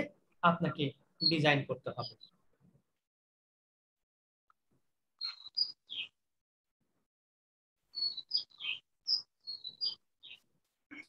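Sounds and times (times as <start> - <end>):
small bird chirping: 1.2 - 2.5, 5.2 - 6.2, 7.9 - 11.0.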